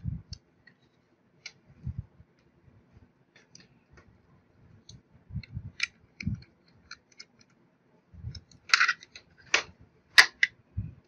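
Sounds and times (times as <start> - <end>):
sharp plastic snaps: 8.3 - 10.6.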